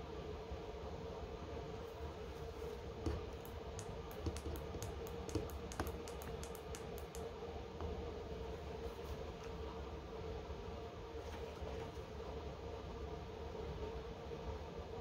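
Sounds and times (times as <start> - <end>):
steady low hum: 0.0 - 11.2.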